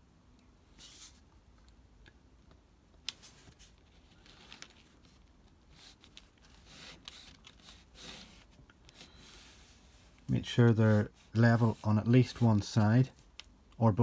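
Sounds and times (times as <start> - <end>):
fingers sliding plastic strips: 3.1 - 9.4
light scratchy rustles: 3.1 - 13.3.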